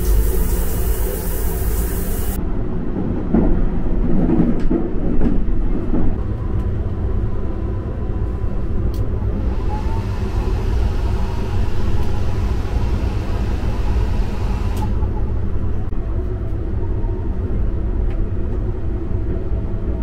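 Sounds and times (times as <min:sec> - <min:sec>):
shower head spraying water: 0:00.0 - 0:02.4
train rumbling in motion: 0:00.0 - 0:20.0.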